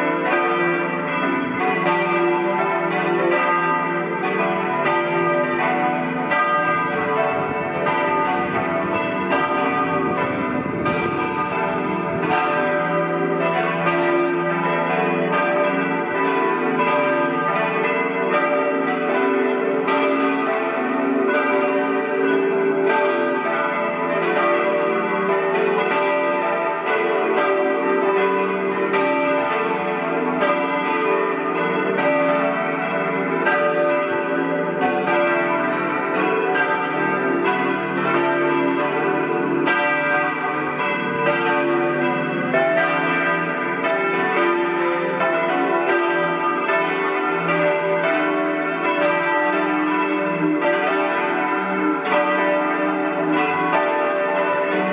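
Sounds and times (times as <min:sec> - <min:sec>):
church bells ringing: 0:00.0 - 0:54.9.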